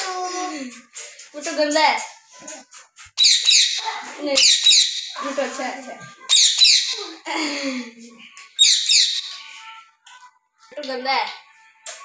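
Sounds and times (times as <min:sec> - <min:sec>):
parakeet squawking: 0:03.2 - 0:05.4, 0:06.2 - 0:07.2, 0:08.6 - 0:09.6.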